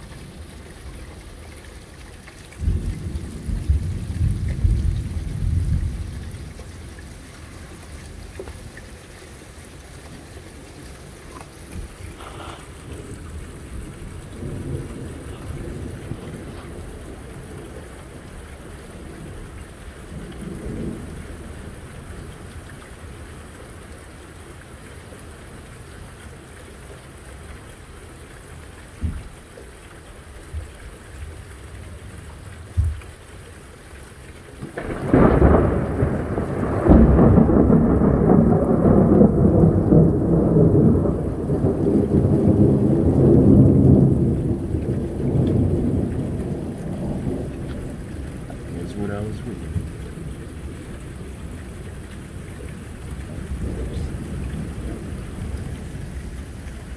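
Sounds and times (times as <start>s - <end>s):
steady rain: 0.0s - 56.9s
thunder crack and rumble: 2.6s - 7.3s, 11.7s - 22.4s, 34.6s - 56.9s.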